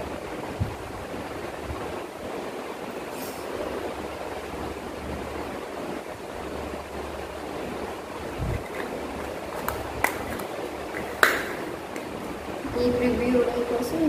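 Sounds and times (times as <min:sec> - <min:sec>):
steady background hiss: 0:00.0 - 0:14.0
plastic jars clicking: 0:08.6 - 0:12.2.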